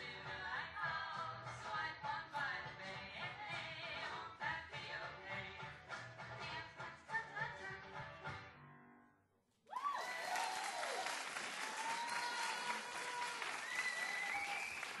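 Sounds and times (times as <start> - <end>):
music: 0.0 - 9.3
audience applause: 9.7 - 15.0
voices cheering: 9.7 - 15.0.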